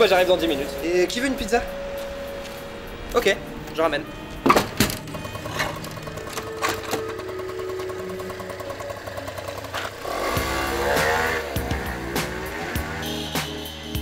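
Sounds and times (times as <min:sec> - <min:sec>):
scooter engine idling: 0:03.9 - 0:13.3.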